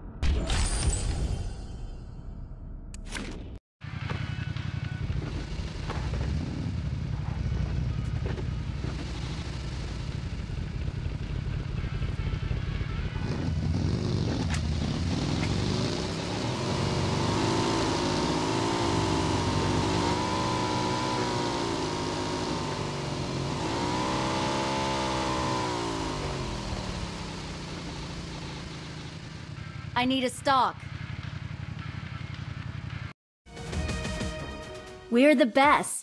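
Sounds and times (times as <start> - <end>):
vehicle engine revving: 3.9 - 30.0.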